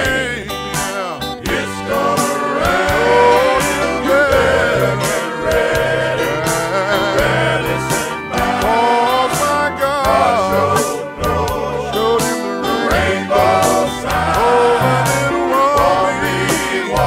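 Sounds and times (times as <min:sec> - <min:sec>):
bass keyboards and drums: 0:00.0 - 0:17.0
men singing gospel song: 0:00.0 - 0:17.0.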